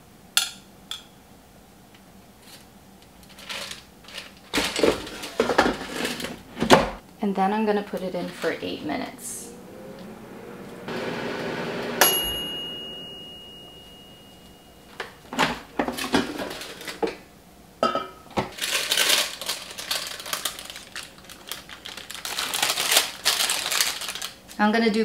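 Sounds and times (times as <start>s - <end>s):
air fryer fan spinning down: 7.9s - 14.0s
timer bell ding: 12.0s - 15.0s
paper rustling: 18.5s - 24.4s.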